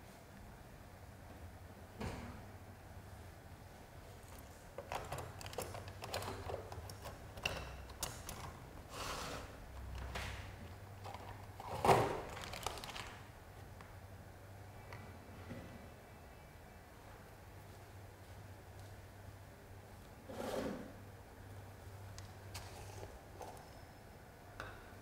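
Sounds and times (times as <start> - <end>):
clicks and rustles of handling: 4.2 - 8.7, 9.7 - 14.0.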